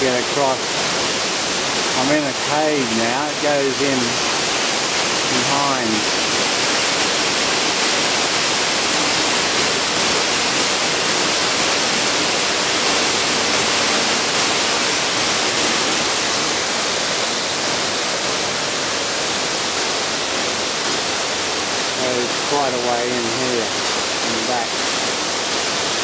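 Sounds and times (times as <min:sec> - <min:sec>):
waterfall rushing: 0:00.0 - 0:26.0.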